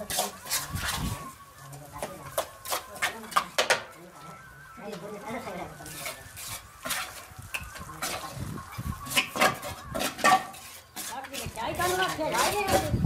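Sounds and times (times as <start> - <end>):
trowel scraping mortar: 0.0 - 3.6, 5.6 - 13.0
trowel clinking on bricks and metal: 9.1 - 13.0.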